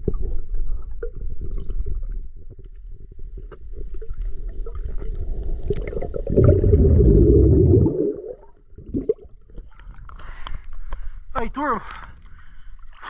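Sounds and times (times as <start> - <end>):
muffled underwater rumble: 0.0 - 10.1
water rushing: 6.4 - 8.5
faint clicks: 9.7 - 11.1.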